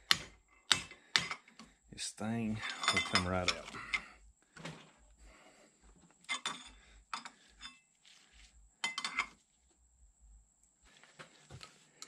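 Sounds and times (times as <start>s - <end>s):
metal tools clinking: 2.5s - 4.1s, 6.2s - 7.8s, 8.8s - 9.4s.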